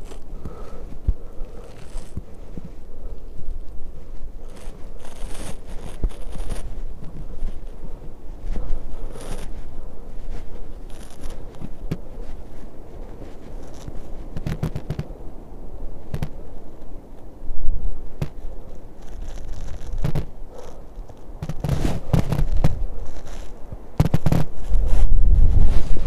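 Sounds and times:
wind rumbling on microphone: 0.0s - 26.0s
crackling knocks: 13.6s - 15.1s, 16.1s - 16.4s, 19.0s - 24.6s.

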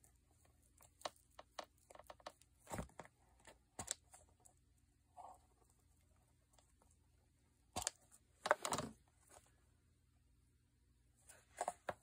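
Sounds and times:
awl point clicking and scratching: 0.0s - 2.6s.

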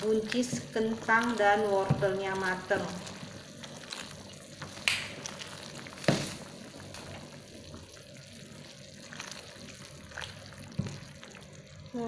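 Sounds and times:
wooden spoon stirring: 0.0s - 8.0s
soup broth bubbling: 0.0s - 12.0s.

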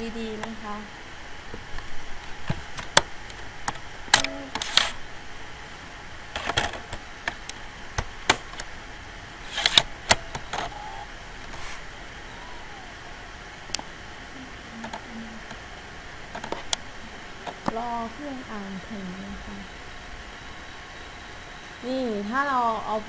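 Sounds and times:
dvd drive tray clicks: 9.5s - 11.1s, 16.3s - 17.8s.

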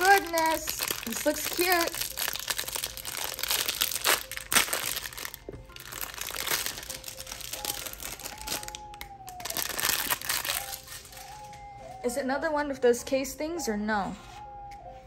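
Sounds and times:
plastic wrapper crinkling: 0.0s - 11.9s.

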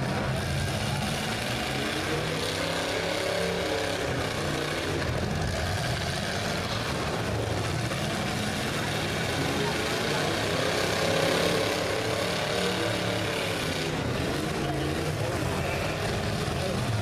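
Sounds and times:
car engine revving: 0.0s - 17.0s
engines rumbling: 0.0s - 17.0s.

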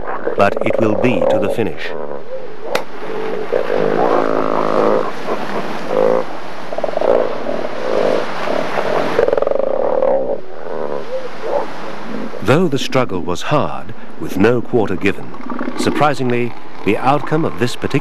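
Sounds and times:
elephant seals roaring: 0.0s - 13.1s.

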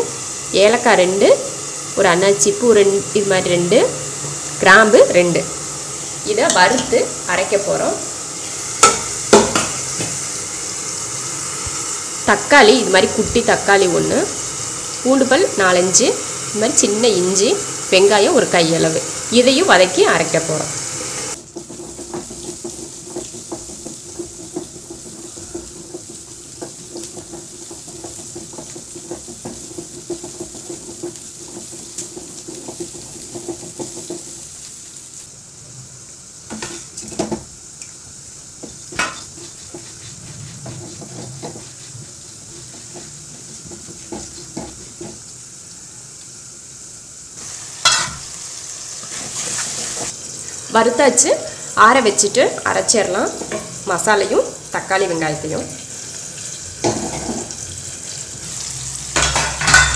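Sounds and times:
food sizzling in oil: 0.0s - 59.9s
metal cookware clanking: 8.8s - 10.1s, 38.9s - 39.4s, 47.8s - 48.4s, 56.4s - 57.6s, 59.1s - 59.9s
wooden spatula scraping pan: 21.6s - 34.4s, 38.6s - 45.2s.

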